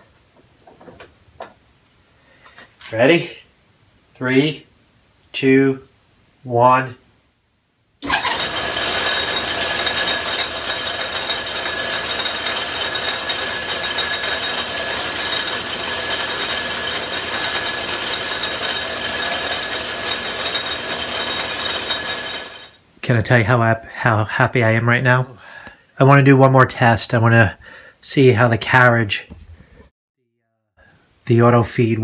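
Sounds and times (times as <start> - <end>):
metal lathe running: 8.0 - 22.8.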